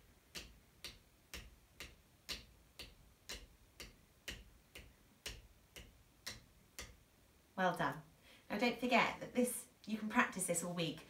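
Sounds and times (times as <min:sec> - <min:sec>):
wooden drumsticks tapping: 0:00.0 - 0:07.0.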